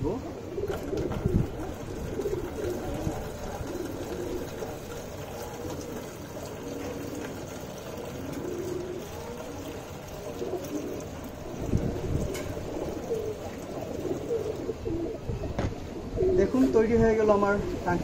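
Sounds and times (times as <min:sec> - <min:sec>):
pigeons cooing: 0:00.0 - 0:16.9
steady background hiss: 0:00.0 - 0:18.0.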